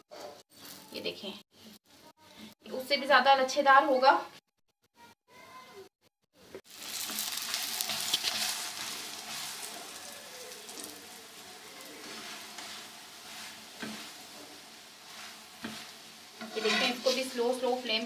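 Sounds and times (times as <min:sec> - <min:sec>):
flatbread sizzling on a griddle: 0:06.6 - 0:18.0.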